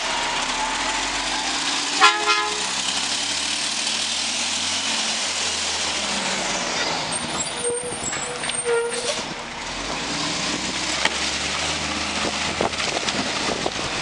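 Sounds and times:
garbage truck engine under load: 0.0 - 14.0
short squeals: 7.1 - 9.3.

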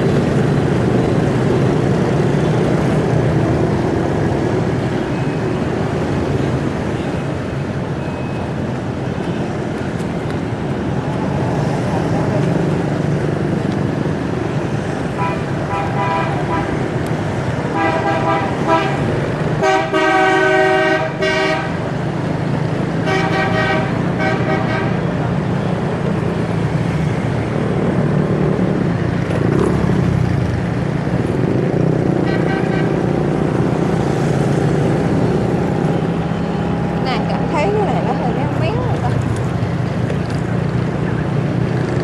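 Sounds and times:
engine and road rumble: 0.0 - 42.0
vehicle horns honking: 15.2 - 16.8, 17.7 - 21.8, 23.0 - 25.2, 32.2 - 33.0.

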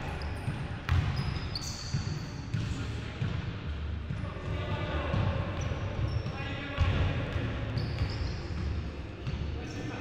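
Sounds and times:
sneaker squeaks: 0.0 - 2.8, 5.1 - 10.0
basketball bouncing on hardwood floor: 0.9 - 1.2.

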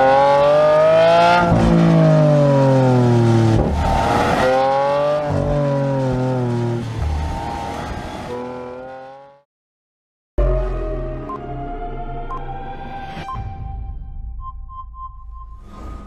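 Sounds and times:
sports car engine revving: 0.0 - 9.4.

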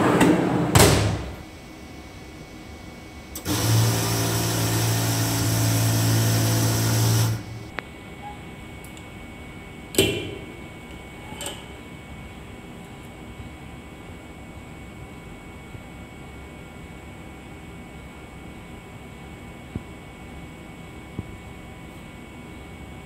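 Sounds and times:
motor hum: 3.2 - 7.8.

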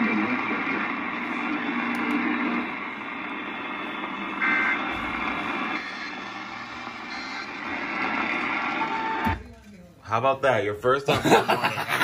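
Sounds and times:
radio static hiss: 0.0 - 9.4
low hum: 0.0 - 9.7.

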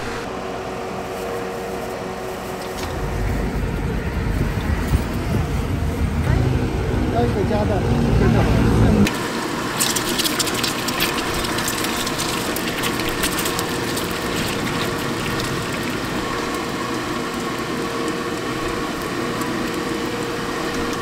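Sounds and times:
food deep-frying in sizzling oil: 9.1 - 21.0.

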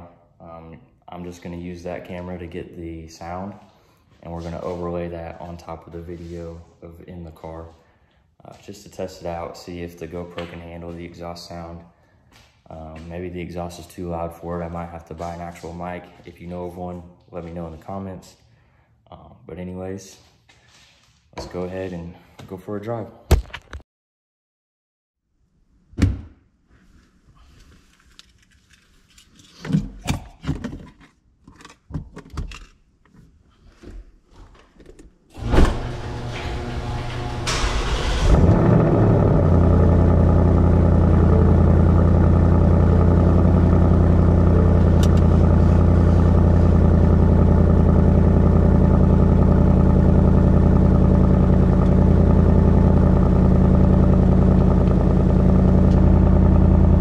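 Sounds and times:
car engine starting and idling: 35.4 - 57.0.

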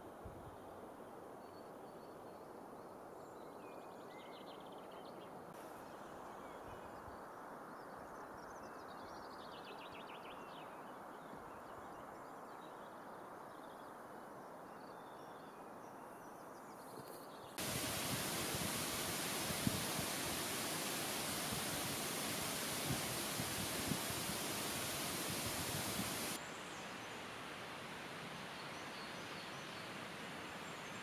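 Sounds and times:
songbirds singing: 14.8 - 27.2
loud steady rush: 17.6 - 26.4
faint rushing ambience: 17.6 - 28.6.

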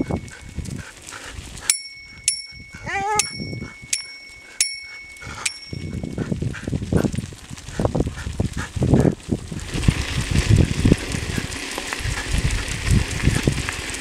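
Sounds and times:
bicycle bell ringing: 1.7 - 6.2.

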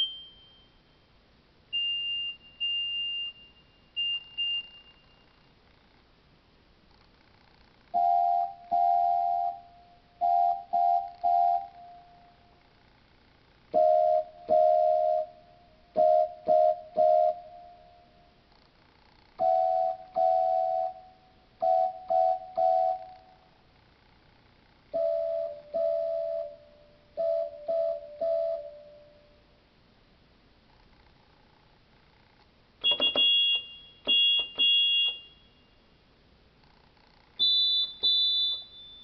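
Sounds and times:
electronic keyboard whistle toots: 0.0 - 0.6, 1.7 - 5.3, 32.8 - 35.4, 37.4 - 39.0.

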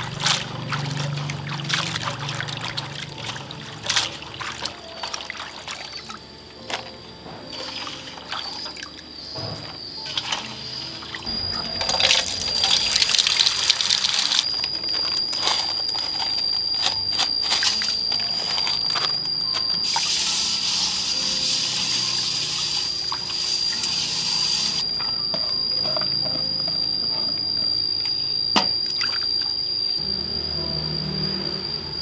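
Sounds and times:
water running and splashing: 0.0 - 6.2
high-pitched whine: 0.0 - 32.0.

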